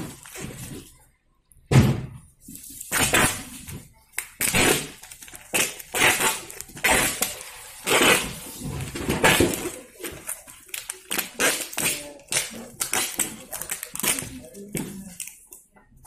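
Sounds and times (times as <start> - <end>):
packing tape rasping off roll: 2.8 - 15.4.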